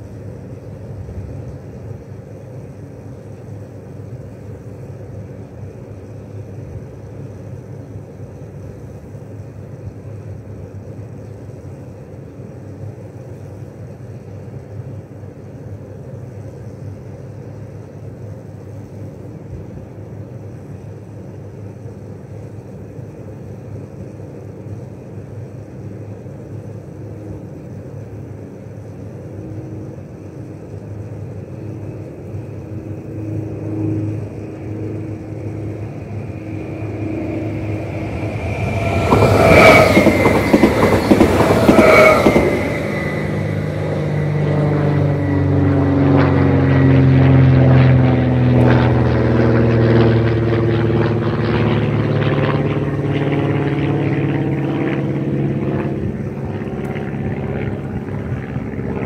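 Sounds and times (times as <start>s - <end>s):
electric train passing: 18.2s - 48.6s, 51.7s - 59.0s
traction motors whining: 34.0s - 45.7s.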